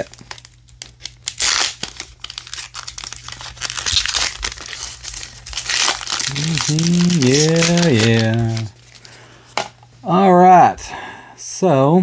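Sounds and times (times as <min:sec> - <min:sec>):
wrapper tearing and crinkling: 0:00.0 - 0:09.2.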